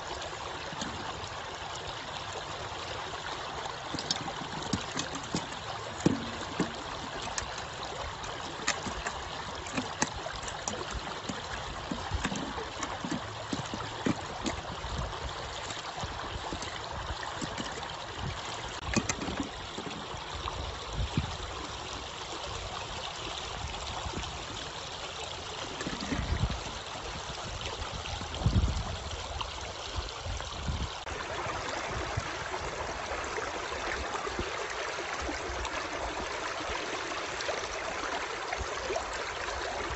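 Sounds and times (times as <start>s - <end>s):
stream water over rocks: 0.0s - 39.9s
handling clicks and knocks: 3.7s - 20.3s, 25.6s - 26.8s.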